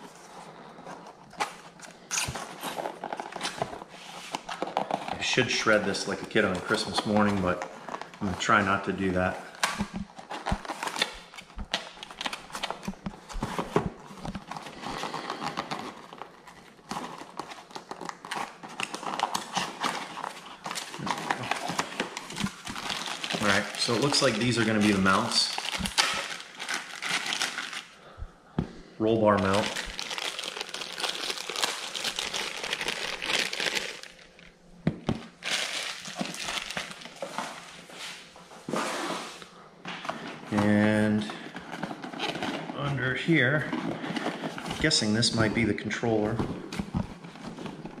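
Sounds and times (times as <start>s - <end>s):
plastic bag crinkling: 1.6s - 28.2s, 29.2s - 34.6s, 35.2s - 38.1s.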